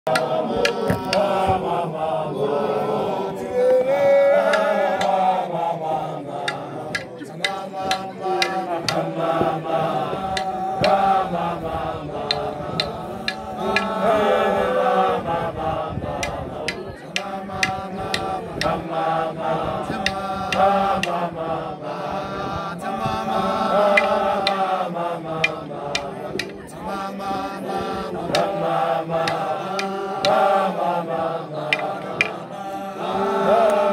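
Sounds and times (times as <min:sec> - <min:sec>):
group chant-like singing: 0:00.0 - 0:33.9
sharp percussive hits: 0:06.4 - 0:09.1, 0:12.2 - 0:14.0, 0:23.9 - 0:24.7.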